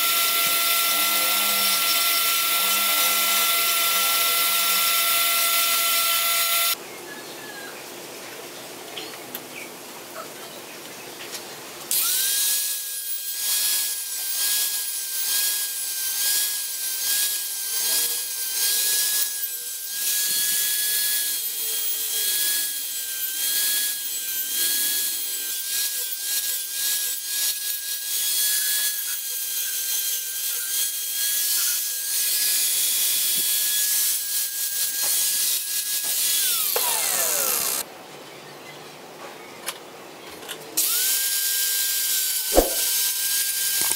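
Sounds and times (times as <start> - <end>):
angle grinder grinding steel: 0.0 - 6.8, 11.9 - 37.9, 40.8 - 43.9
grinder disc spinning down: 36.4 - 37.8.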